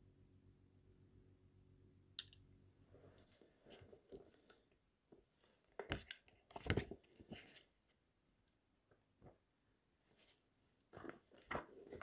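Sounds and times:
faint low hum: 0.0s - 12.0s
paper rustling: 10.2s - 12.0s.

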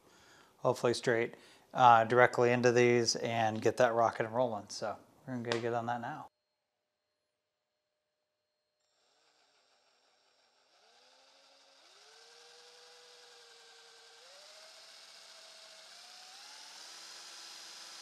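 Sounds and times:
cordless drill boring into wood: 8.8s - 18.0s.

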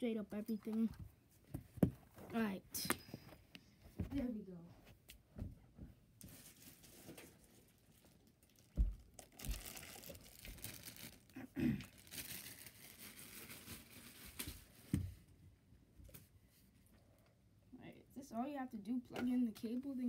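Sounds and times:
rustling and crinkling: 5.7s - 15.3s.

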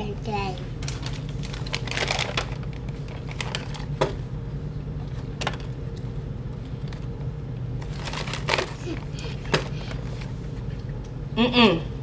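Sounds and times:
steady low hum: 0.0s - 12.0s
plastic bag crinkling: 0.8s - 4.0s, 7.8s - 10.3s.

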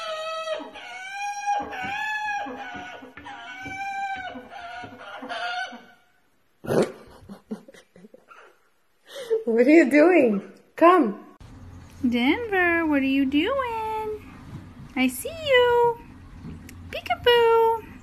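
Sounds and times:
parrot calling: 0.0s - 6.2s.

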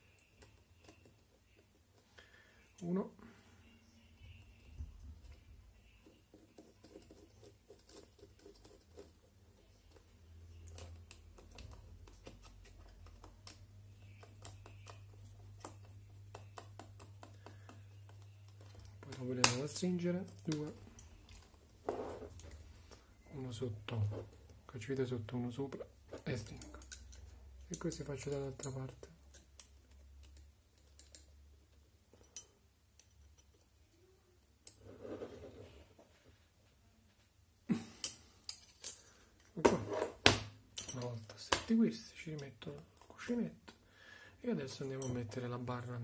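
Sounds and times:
small clicks of screws and parts: 26.2s - 33.7s, 38.0s - 39.6s.

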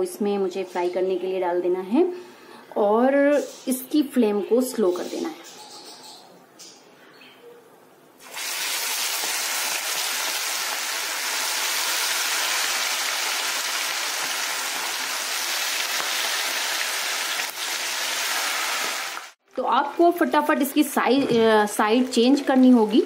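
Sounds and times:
chicken deep-frying in hot oil: 8.2s - 19.4s.

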